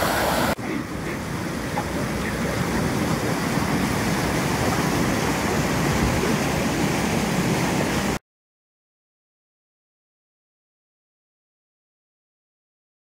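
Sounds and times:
water rushing over a spillway: 0.0 - 8.2.

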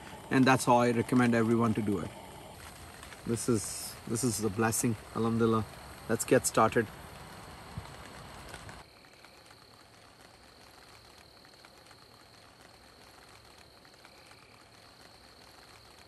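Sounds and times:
insect trill: 0.0 - 16.0.

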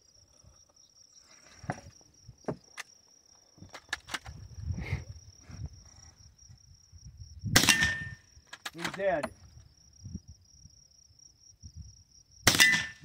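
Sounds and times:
low rumble of handling or wind: 3.6 - 12.4.

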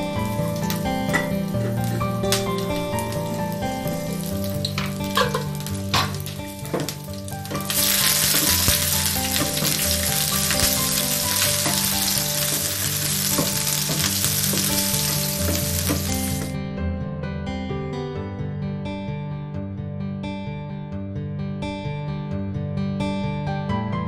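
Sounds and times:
chillies sizzling in hot oil: 0.0 - 16.6
spatula knocking pan: 0.2 - 16.5.

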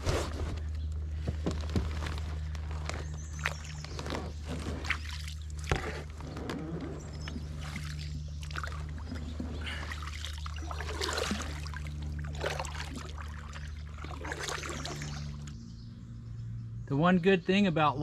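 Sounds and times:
steady low hum: 0.0 - 18.0
water trickling off paddle: 3.4 - 15.5
paddle splashes: 7.0 - 15.5.

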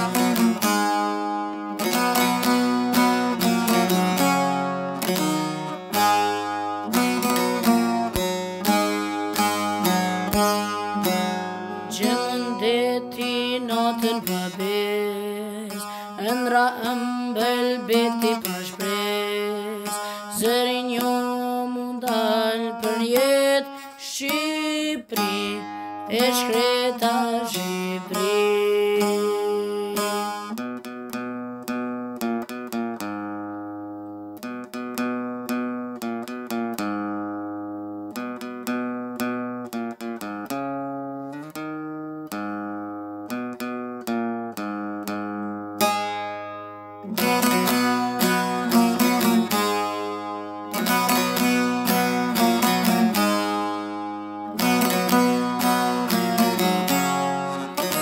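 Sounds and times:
plucked string instrument: 0.0 - 58.0
boy singing: 11.8 - 30.3.

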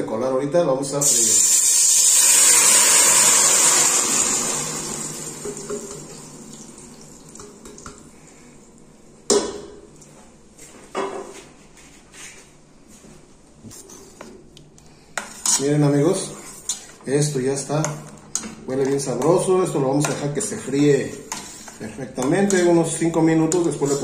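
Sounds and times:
sauce sizzling in hot oil: 1.0 - 7.4.

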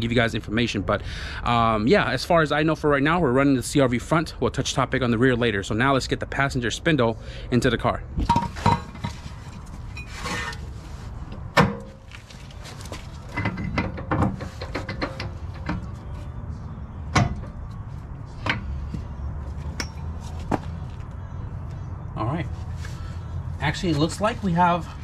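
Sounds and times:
metal clunks and knocks: 8.2 - 10.6, 11.3 - 12.1, 13.3 - 16.0, 17.1 - 17.6.

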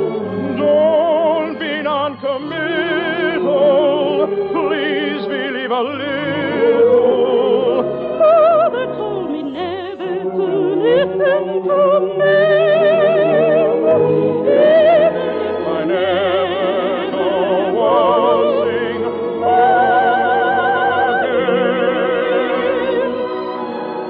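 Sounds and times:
operatic singing: 0.0 - 24.0
orchestra playing: 0.0 - 24.0.

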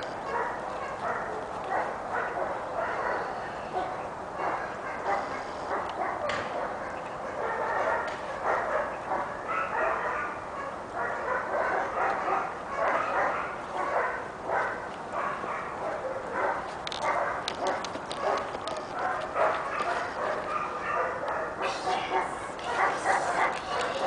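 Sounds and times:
dog barking and yipping: 0.2 - 24.0.

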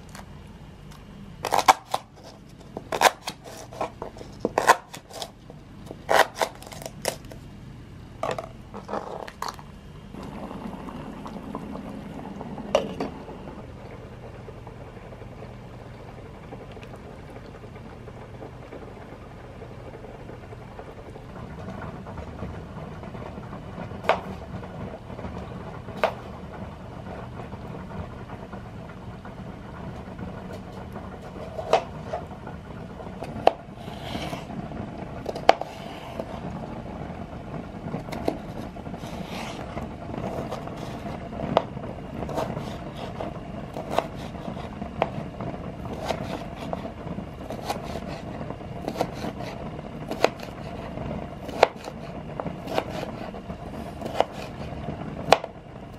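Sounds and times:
low steady hum: 0.0 - 55.9
knife chopping on cutting board: 5.9 - 6.9, 38.1 - 39.6, 40.2 - 45.2, 45.9 - 46.8, 47.5 - 48.2, 48.8 - 54.7.

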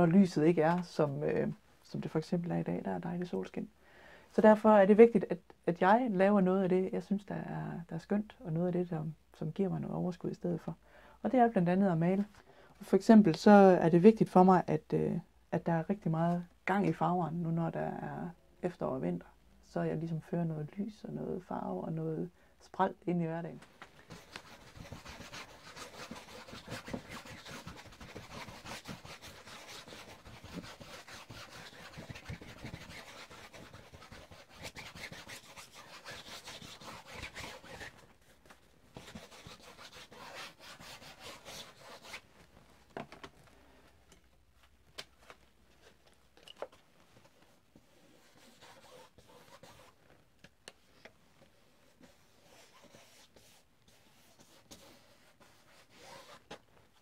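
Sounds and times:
paintbrush scrubbing canvas: 24.1 - 38.0, 39.0 - 42.2, 47.8 - 50.0, 51.9 - 56.4.

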